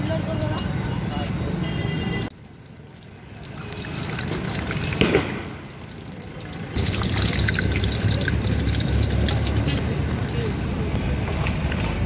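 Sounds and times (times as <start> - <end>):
deep-frying sizzle in oil: 0.0 - 1.0, 2.3 - 10.6.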